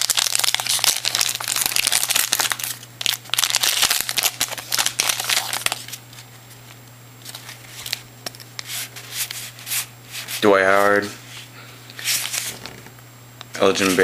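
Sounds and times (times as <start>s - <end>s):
foil wrapper crinkling: 0.0s - 9.5s
cards rustling: 0.0s - 11.2s, 11.9s - 12.9s.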